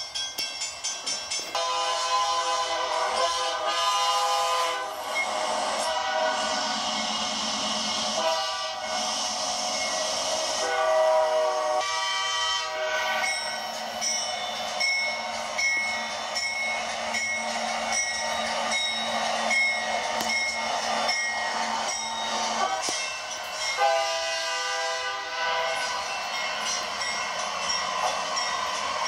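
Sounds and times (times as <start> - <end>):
locomotive horn blasts: 1.6 - 5.0, 5.8 - 6.8, 8.1 - 9.0, 10.6 - 13.2, 23.8 - 26.0
bell ringing: 13.2 - 29.0.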